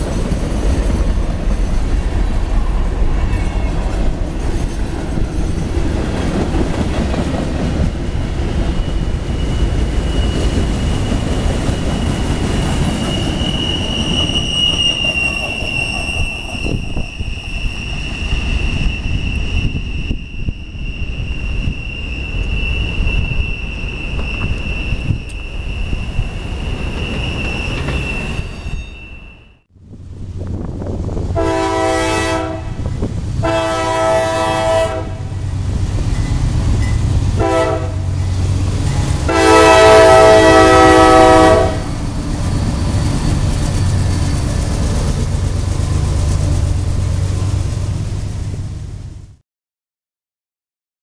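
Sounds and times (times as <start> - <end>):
locomotive rumble: 29.7 - 49.4
locomotive horn blasts: 31.4 - 35.4, 37.3 - 38.2, 39.3 - 41.9
railroad crossing bell ringing: 35.4 - 37.2, 38.0 - 39.3.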